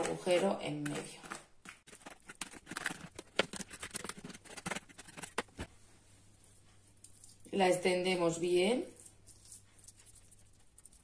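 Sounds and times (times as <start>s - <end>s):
fork scraping plastic colander: 0.0s - 5.7s.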